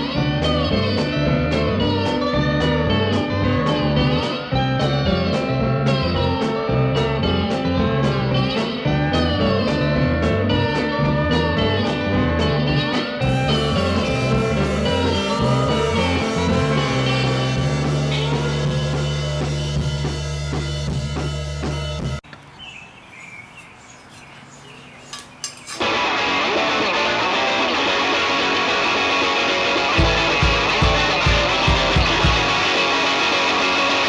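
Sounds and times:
rock music with slide guitar: 0.0 - 22.2, 25.8 - 34.0
clicks: 22.2 - 22.5.

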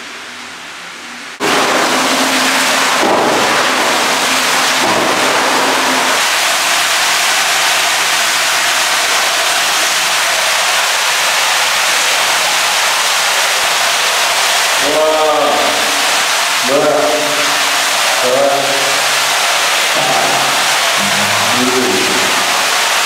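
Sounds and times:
water running from tap: 1.4 - 23.0
faint hum: 20.0 - 22.8.

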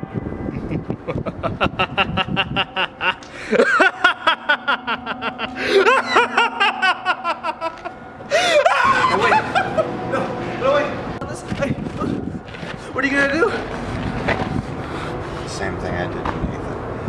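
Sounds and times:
man laughing maniacally: 0.5 - 10.6.

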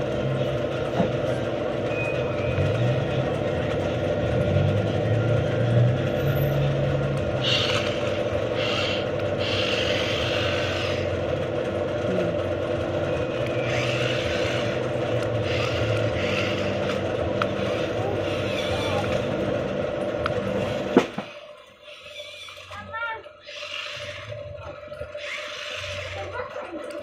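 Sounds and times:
wheels scraping on concrete: 5.8 - 27.0
toy car motor whirring: 7.4 - 11.2, 13.2 - 19.5, 21.3 - 27.0.

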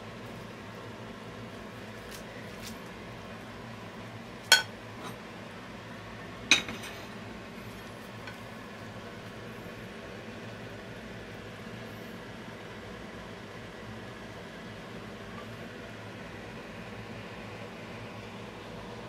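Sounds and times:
steady low hum: 0.0 - 19.0
plate and frying pan clinking: 4.5 - 5.2, 6.5 - 7.1.

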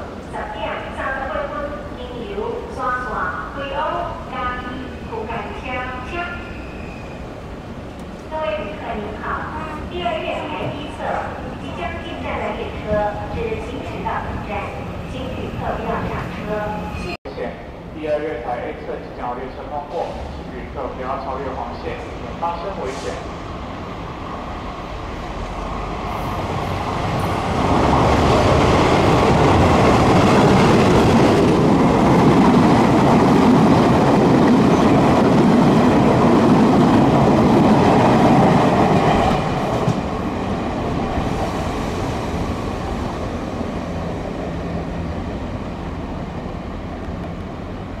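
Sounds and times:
train passing at speed: 0.0 - 48.0.

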